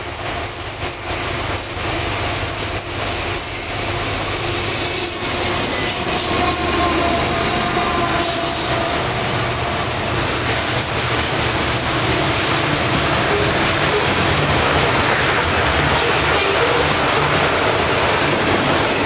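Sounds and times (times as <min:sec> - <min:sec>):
diesel locomotives passing: 0:00.0 - 0:19.0
train wheels rumbling on rail: 0:00.0 - 0:19.0
high wheel squeal: 0:03.6 - 0:10.2.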